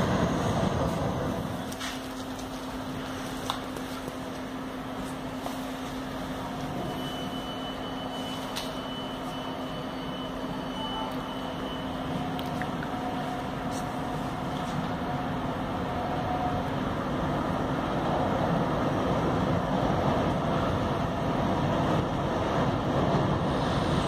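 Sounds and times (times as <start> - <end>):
faint high whine: 0.0 - 22.4
faint train rumbling: 0.0 - 24.0
low station hum: 0.0 - 24.0.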